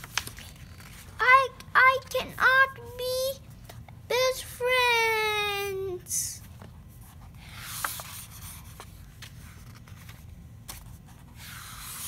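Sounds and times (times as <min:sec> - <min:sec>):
paper rustling and sliding: 0:00.0 - 0:01.2, 0:06.5 - 0:12.0.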